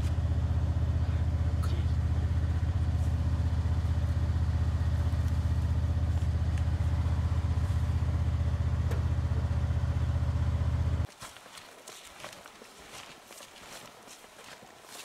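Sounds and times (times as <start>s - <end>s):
vehicle engine idling: 0.0s - 11.1s.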